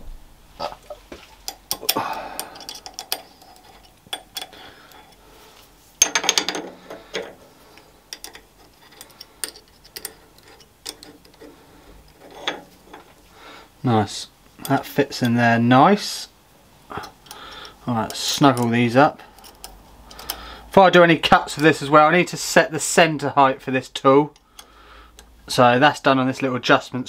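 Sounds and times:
metal tool clicking and scraping: 0:01.4 - 0:05.2, 0:06.0 - 0:13.1, 0:17.0 - 0:20.5.

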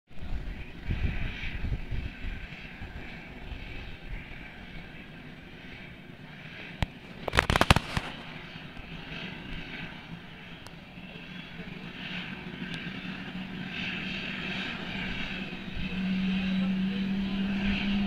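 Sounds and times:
helicopter turbine and rotor: 0:00.1 - 0:18.0
sharp cracks: 0:06.8 - 0:08.9.

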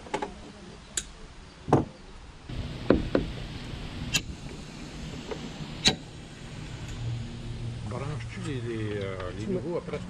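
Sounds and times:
steady low hum: 0:02.3 - 0:10.0.

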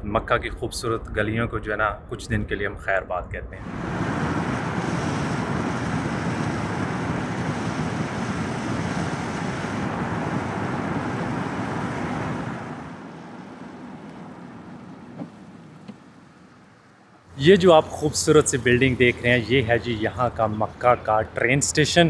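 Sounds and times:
car tyre and wind noise: 0:03.6 - 0:21.0.

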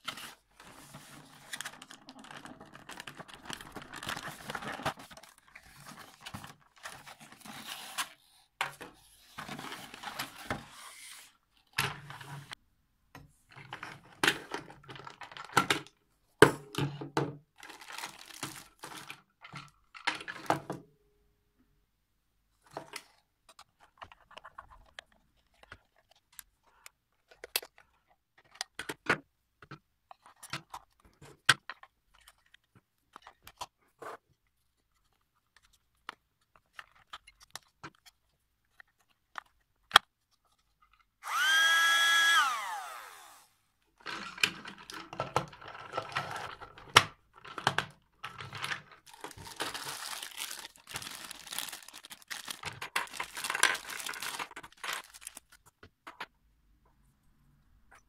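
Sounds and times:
plastic pieces clattering: 0:01.4 - 0:06.9, 0:44.0 - 0:56.2
small vacuum motor whining: 0:41.2 - 0:43.6.

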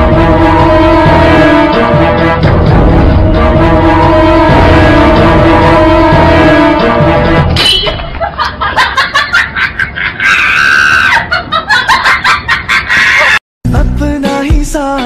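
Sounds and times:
music track: 0:00.0 - 0:07.7
people screaming: 0:10.2 - 0:11.4.

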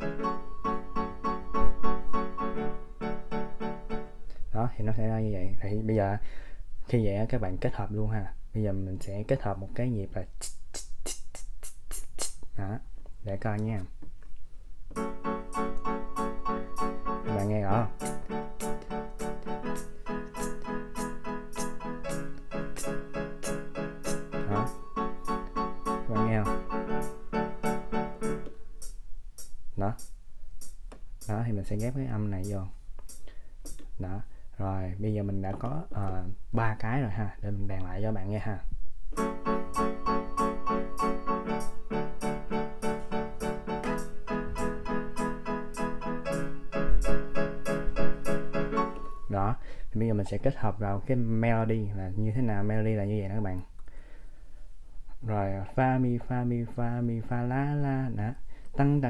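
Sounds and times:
electronic keyboard piano notes: 0:00.0 - 0:04.4, 0:14.9 - 0:33.8, 0:39.1 - 0:49.6.

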